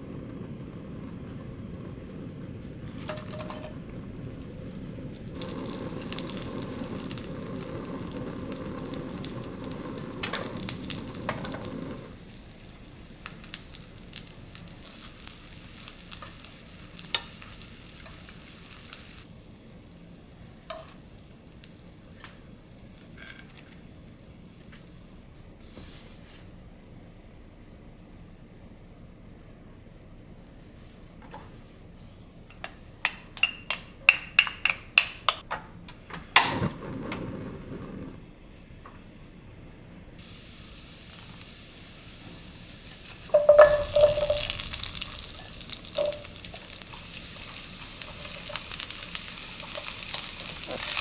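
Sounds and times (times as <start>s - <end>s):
tofu sizzling in a frying pan: 2.8s - 25.2s, 40.2s - 51.0s.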